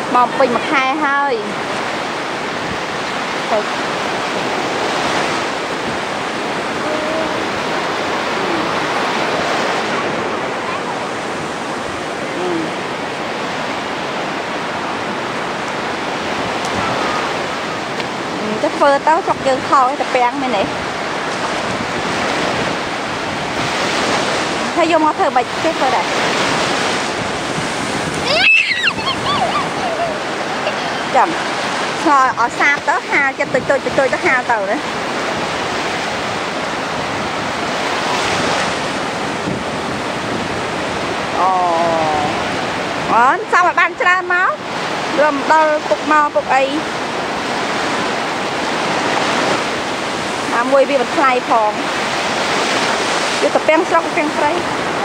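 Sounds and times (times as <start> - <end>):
sea surf on sandy beach: 0.0 - 55.0
wind buffeting microphone: 0.0 - 55.0.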